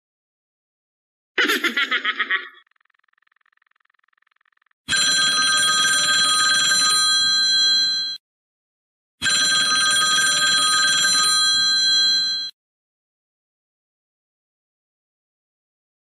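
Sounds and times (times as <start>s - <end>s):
telephone ringtone: 3.3s - 8.2s, 9.2s - 12.6s.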